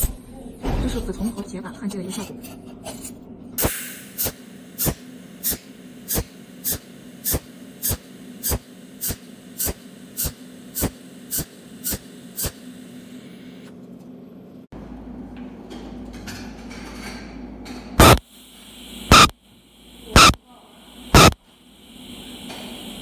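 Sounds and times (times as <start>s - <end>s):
welding machine snapping: 3.6s - 12.6s, 18.0s - 18.2s, 19.1s - 19.3s, 21.2s - 21.4s
low hum: 18.0s - 18.2s.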